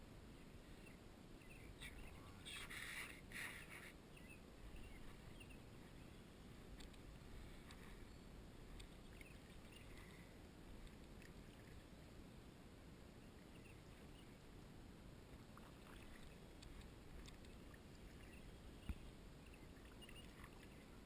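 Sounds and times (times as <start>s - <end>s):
kayak paddling on water: 15.2s - 21.0s.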